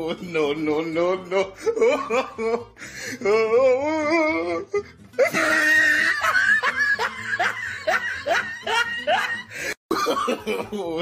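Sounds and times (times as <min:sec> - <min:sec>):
person laughing: 0:01.4 - 0:11.0.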